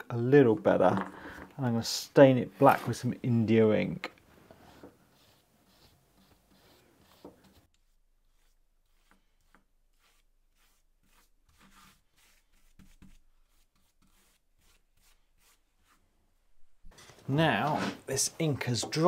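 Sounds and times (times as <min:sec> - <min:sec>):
paintbrush scratching on plywood: 0:04.6 - 0:16.0.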